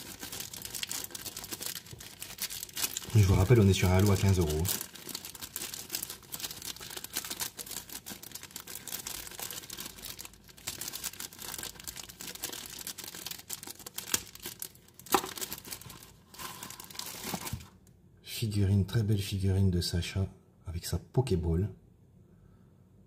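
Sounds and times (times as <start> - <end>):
plastic bag crinkling: 0.0 - 17.8.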